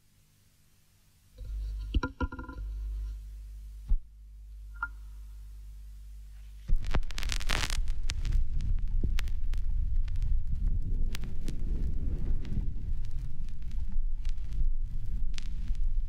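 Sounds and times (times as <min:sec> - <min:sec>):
low humming drone: 0:01.4 - 0:06.6.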